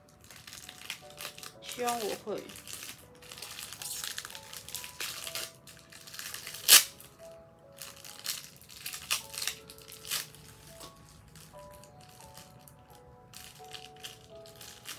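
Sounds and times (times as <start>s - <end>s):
plastic bag crinkling: 0.0s - 14.9s
soft background music: 0.0s - 14.9s.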